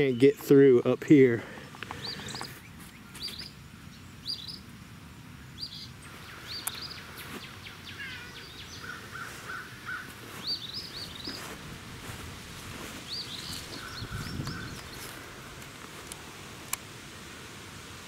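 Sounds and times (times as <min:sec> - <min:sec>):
songbirds chirping: 0:00.0 - 0:18.0
lower bird notes: 0:05.5 - 0:15.8.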